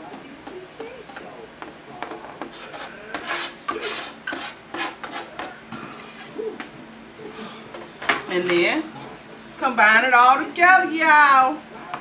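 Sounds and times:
knife scraping board: 2.4 - 6.4.

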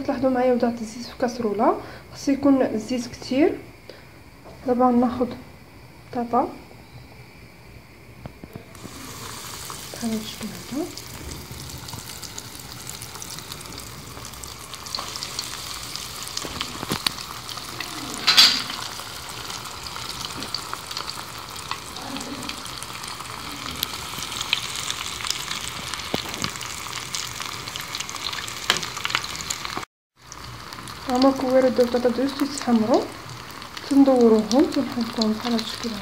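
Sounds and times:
food deep-frying in oil: 8.7 - 36.0.

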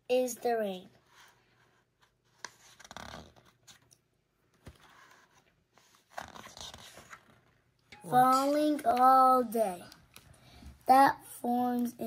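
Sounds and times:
paper pages rustling: 1.0 - 7.7.

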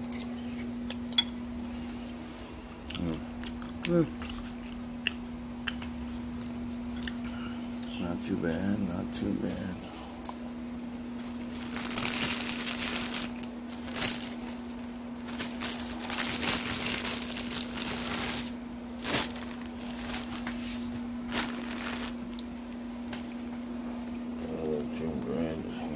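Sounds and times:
steady low hum: 0.0 - 25.9
plastic bag crinkling: 11.2 - 22.8.

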